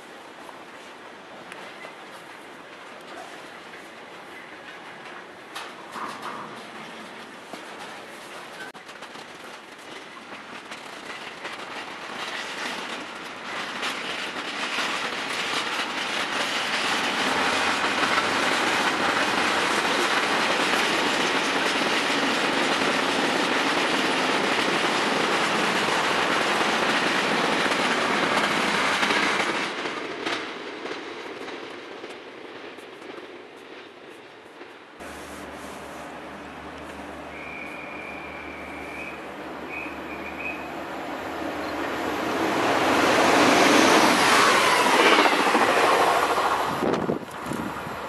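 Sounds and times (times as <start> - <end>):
freight train wheels clattering: 2.7 - 35.1, 41.5 - 47.9.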